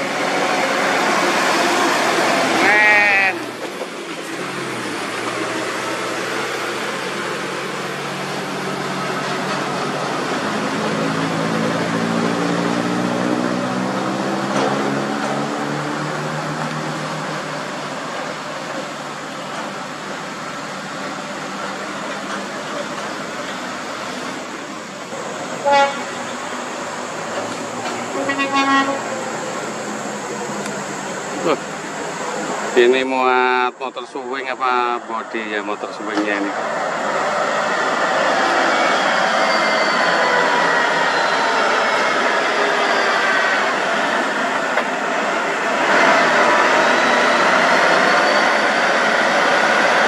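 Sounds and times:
heavy diesel trucks passing: 0:00.0 - 0:50.0
truck horn toot: 0:25.6 - 0:26.2, 0:28.1 - 0:29.1.

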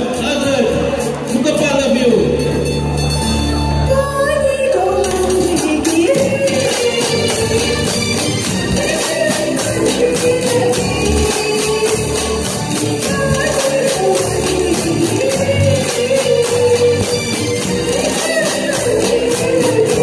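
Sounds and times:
live band music: 0:00.0 - 0:20.0
high shaking beat: 0:05.1 - 0:20.0.

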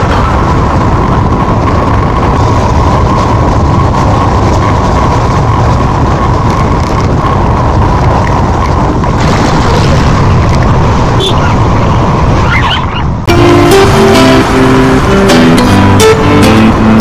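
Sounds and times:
wind noise on microphone: 0:00.0 - 0:13.3
motorcycle engine running: 0:00.0 - 0:17.0.

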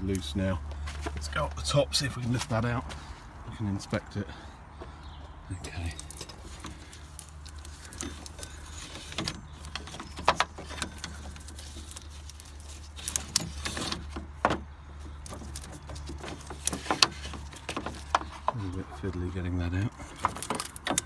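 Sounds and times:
rubber belt clicking and rubbing: 0:06.0 - 0:14.4.

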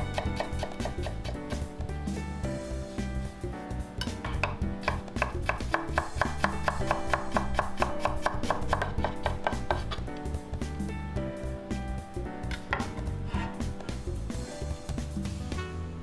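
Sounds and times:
knife chopping on cutting board: 0:00.0 - 0:01.7, 0:04.0 - 0:10.1
background music: 0:00.0 - 0:16.0.

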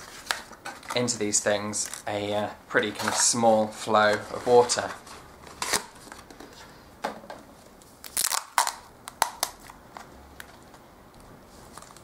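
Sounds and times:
plastic and card crinkling clicks: 0:00.2 - 0:02.1, 0:11.7 - 0:12.0.

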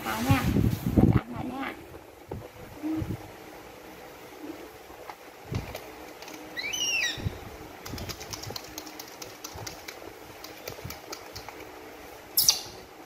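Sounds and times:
baby monkey squeaking: 0:06.6 - 0:07.3, 0:12.4 - 0:12.8.

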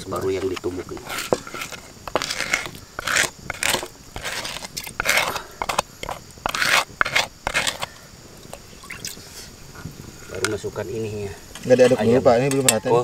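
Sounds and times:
spatula scraping wooden mortar: 0:00.0 - 0:08.0.

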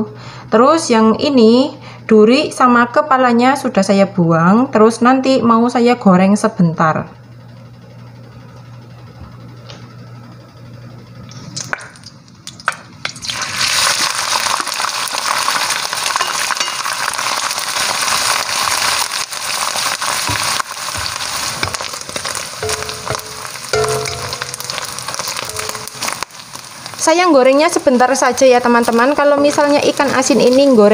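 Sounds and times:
fish sizzling in hot oil: 0:13.1 - 0:30.9.

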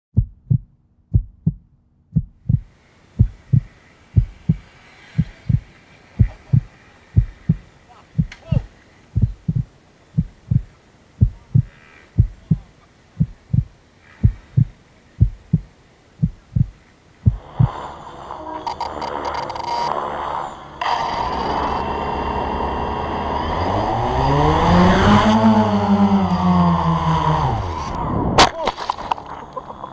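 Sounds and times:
heartbeat thumps: 0:00.1 - 0:17.8
steady hiss: 0:02.5 - 0:20.8
model car engine revving: 0:17.4 - 0:28.0.

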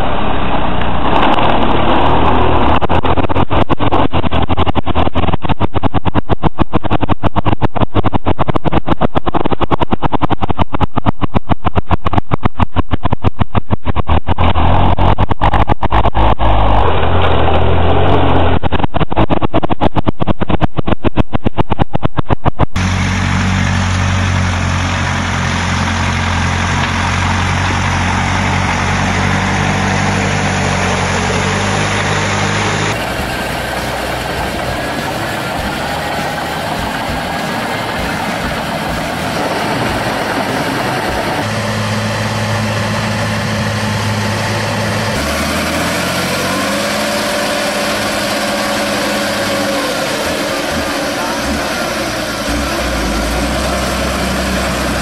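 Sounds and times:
tractor engine droning: 0:00.0 - 0:55.0
tractor engine pulsing: 0:00.0 - 0:55.0
tractor engine rising in pitch: 0:00.0 - 0:55.0.

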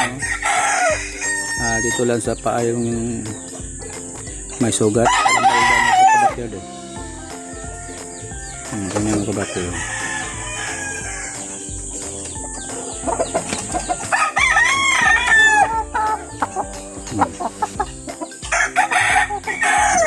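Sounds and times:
rooster crowing: 0:00.0 - 0:02.2, 0:05.0 - 0:07.4, 0:09.3 - 0:11.5, 0:14.0 - 0:16.6, 0:18.4 - 0:20.0
rooster clucking: 0:00.0 - 0:20.0.

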